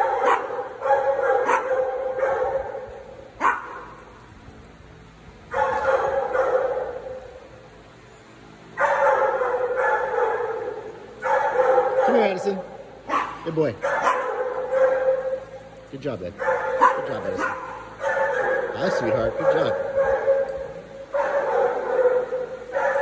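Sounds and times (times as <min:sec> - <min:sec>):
dog yipping: 0:00.0 - 0:02.7, 0:03.4 - 0:03.9, 0:08.8 - 0:12.4, 0:13.1 - 0:15.8, 0:16.4 - 0:23.0.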